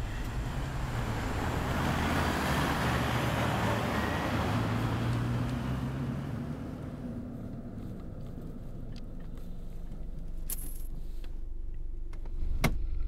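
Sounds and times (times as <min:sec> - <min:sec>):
car engine hum: 0:00.0 - 0:13.0
tyre and road noise: 0:00.0 - 0:13.0.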